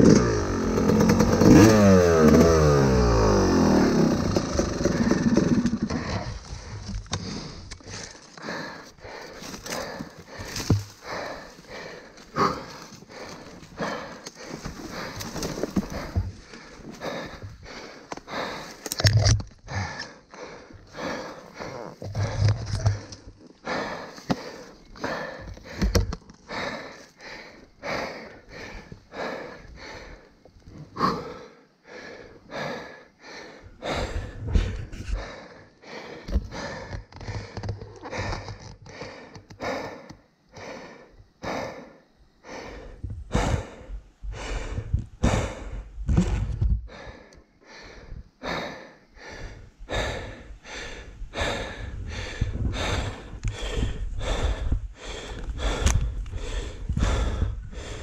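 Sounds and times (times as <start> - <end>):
dull low rumbling: 0.0 - 8.2, 49.4 - 58.0
person panting hard: 0.1 - 58.0.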